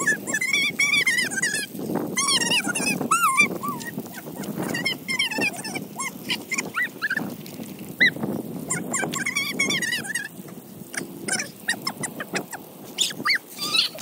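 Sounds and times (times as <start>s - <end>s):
puppies whining and squealing: 0.0s - 7.3s, 11.3s - 14.0s
hiss of sprinkler jets: 0.0s - 14.0s.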